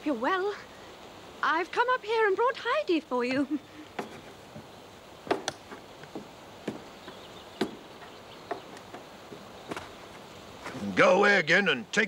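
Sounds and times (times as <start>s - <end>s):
sharp short knocks: 4.0s - 10.8s.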